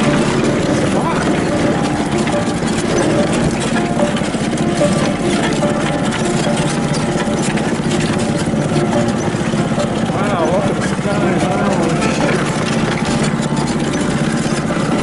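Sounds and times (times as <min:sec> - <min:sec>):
small engine running: 0:00.0 - 0:15.0.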